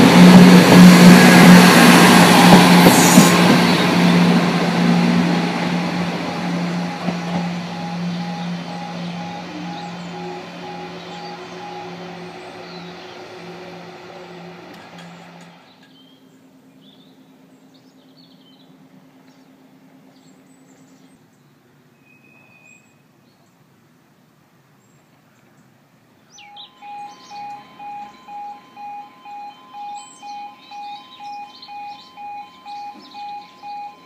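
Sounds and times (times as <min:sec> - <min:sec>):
level crossing warning alarm: 0:00.0 - 0:15.6, 0:26.4 - 0:34.0
diesel train rumbling: 0:00.0 - 0:16.6, 0:26.4 - 0:34.0
birds chirping: 0:06.7 - 0:17.2, 0:26.3 - 0:34.0.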